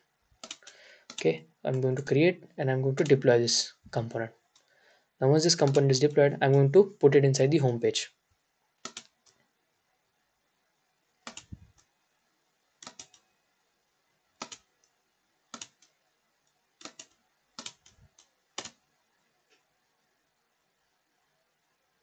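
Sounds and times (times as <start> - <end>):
mouse and keyboard clicking: 0.4 - 1.3, 8.8 - 9.4, 11.2 - 11.9, 12.8 - 13.3, 14.4 - 14.7, 15.5 - 16.0, 16.8 - 18.8.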